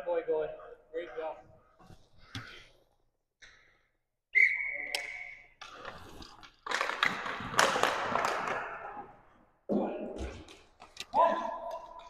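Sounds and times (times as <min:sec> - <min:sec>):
referee's whistle blast: 0:04.4 - 0:05.5.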